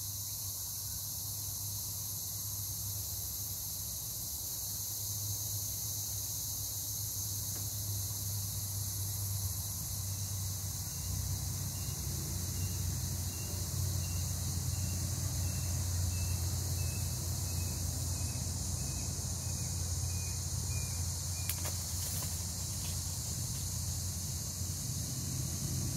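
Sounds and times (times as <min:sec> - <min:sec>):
insects chorus: 0:00.0 - 0:25.9
low steady rumble: 0:09.4 - 0:25.9.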